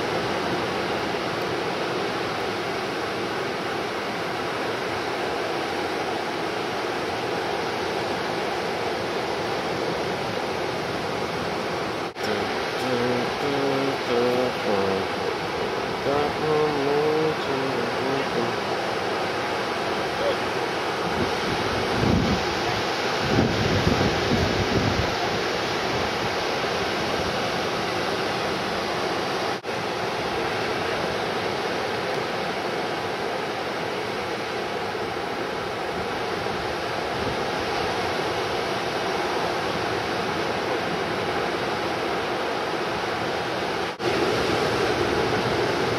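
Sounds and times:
ocean surf breaking: 0.0 - 45.9.

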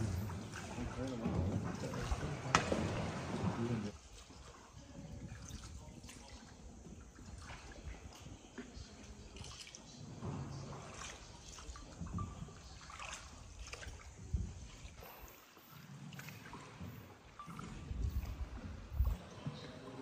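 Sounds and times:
faint water trickling and splashing: 0.0 - 20.0.

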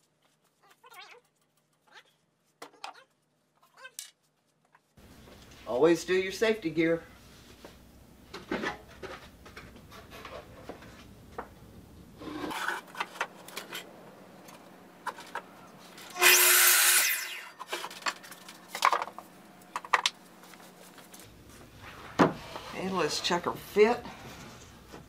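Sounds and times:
miter saw cutting wood: 16.1 - 17.5.

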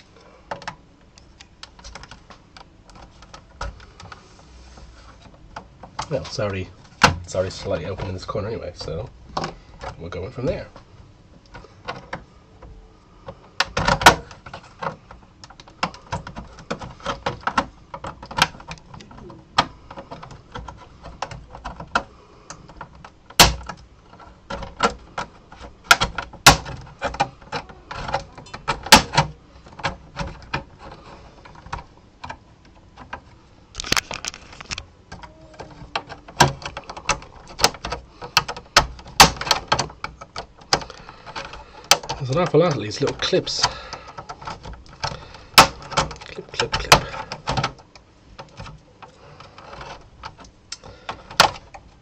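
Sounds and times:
plastic clips clicking and snapping: 11.4 - 52.0.

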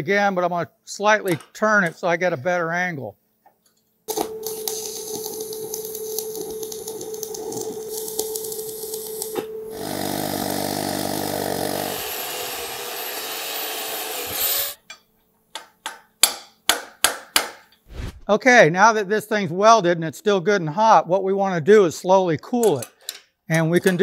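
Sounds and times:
welding arc crackling: 4.1 - 13.1
power tool wire brush whirring: 7.9 - 14.8.

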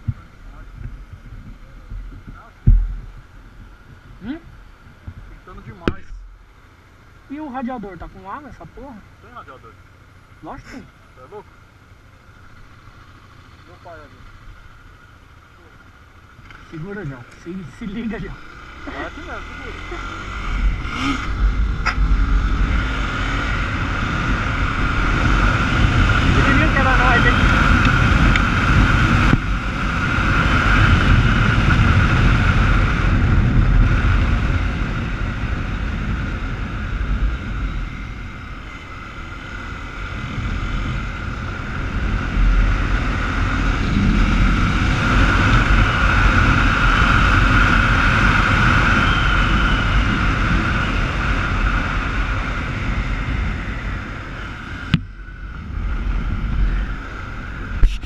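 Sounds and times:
wind rush on microphone: 0.0 - 6.3, 19.5 - 58.0
motorcycle engine running: 0.0 - 58.0.

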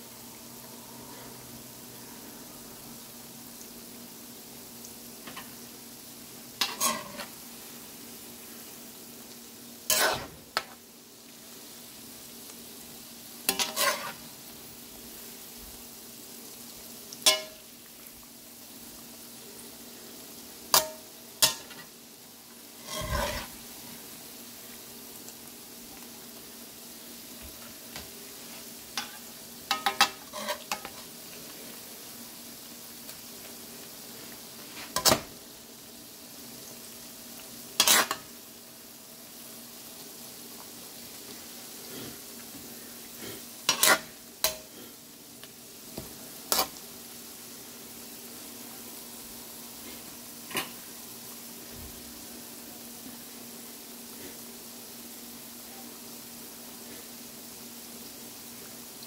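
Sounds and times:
food sizzling in oil: 0.0 - 59.0
metal spatula scraping a wok: 6.6 - 7.4, 9.9 - 10.4, 13.5 - 14.2, 22.8 - 23.6, 28.6 - 31.0, 37.8 - 38.3, 43.3 - 44.7, 46.5 - 46.8.

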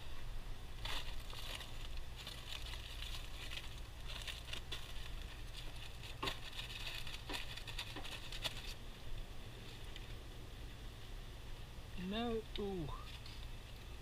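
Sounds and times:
aluminium foil crinkling: 0.8 - 8.8, 12.9 - 14.0.

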